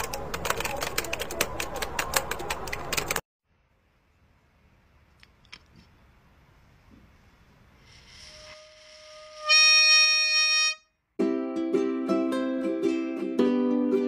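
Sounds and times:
breathy hiss: 0:07.2 - 0:09.4
toy horn reedy note: 0:08.1 - 0:10.9
plucked-string music: 0:11.2 - 0:14.0.

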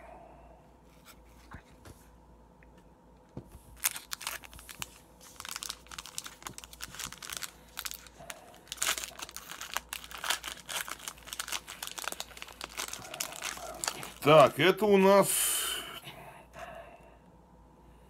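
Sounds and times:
foil wrapper crinkling and tearing: 0:03.8 - 0:14.6.

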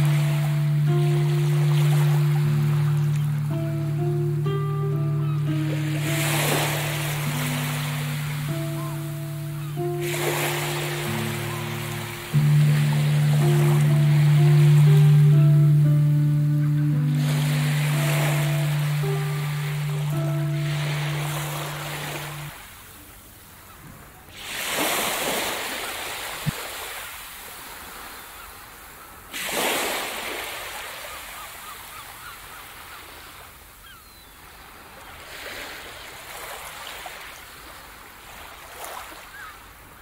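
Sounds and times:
small waves washing on sand: 0:00.0 - 0:04.1, 0:05.5 - 0:15.5, 0:24.2 - 0:33.8, 0:34.4 - 0:40.0
held music note: 0:00.0 - 0:22.6.

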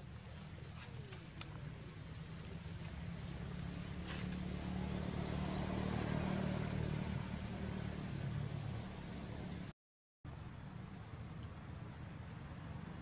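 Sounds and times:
motorbike passing: 0:01.6 - 0:09.7.

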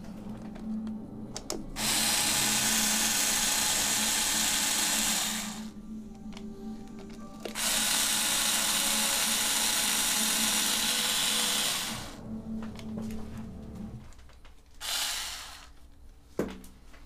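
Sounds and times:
power drill spinning: 0:01.8 - 0:05.8, 0:07.5 - 0:12.2, 0:14.8 - 0:15.8.

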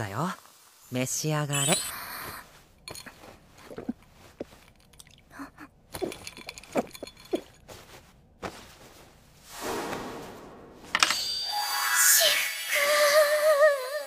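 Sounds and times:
person gulping a drink: 0:01.6 - 0:07.6.

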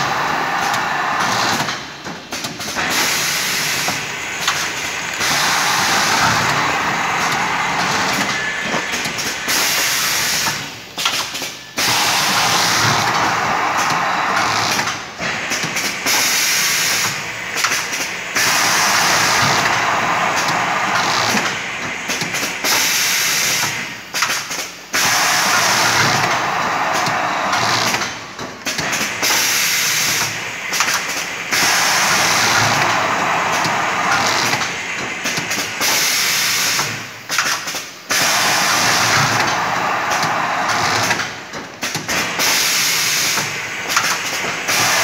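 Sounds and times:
packing machine hissing: 0:00.0 - 0:45.0.

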